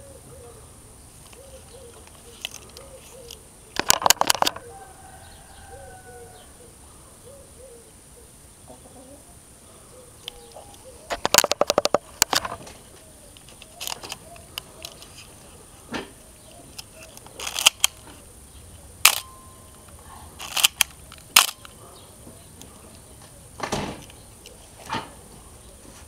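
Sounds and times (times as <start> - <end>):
camera lens mechanical clicks: 16.7 - 18.0, 19.0 - 19.3, 20.4 - 21.8.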